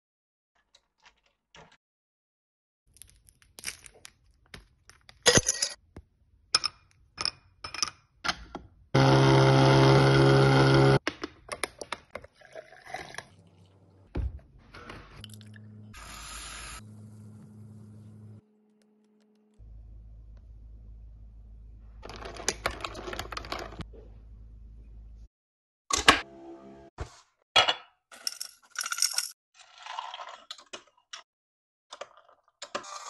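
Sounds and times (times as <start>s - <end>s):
milk frother buzzing: 9.0s - 11.0s
low hum: 15.2s - 22.0s.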